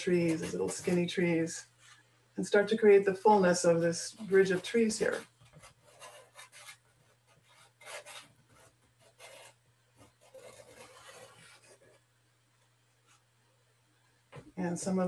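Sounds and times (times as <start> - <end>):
pastel scratching on paper: 4.2 - 12.0.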